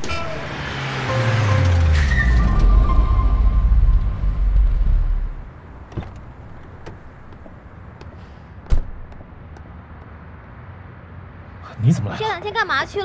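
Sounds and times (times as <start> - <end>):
car door slamming: 8.6 - 9.1.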